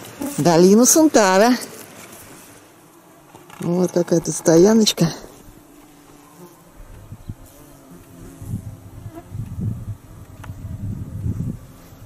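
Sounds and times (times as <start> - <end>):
flying insects buzzing: 0.0 - 12.0
low gusty rumble: 8.2 - 12.0.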